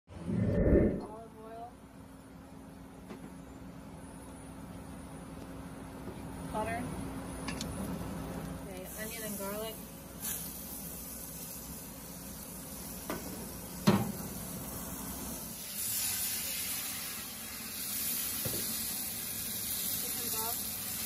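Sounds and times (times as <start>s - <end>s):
onion and butter sizzling in wok: 8.9s - 21.0s.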